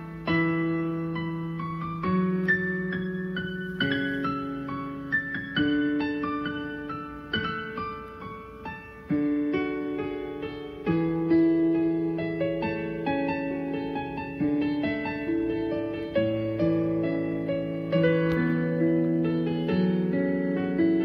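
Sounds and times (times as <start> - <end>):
slow piano chords: 0.0 - 21.0.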